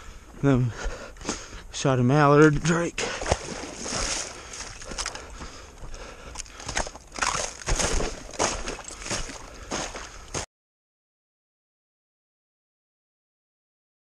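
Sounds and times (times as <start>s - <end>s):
boots crunching through icy snow: 2.4s - 10.5s.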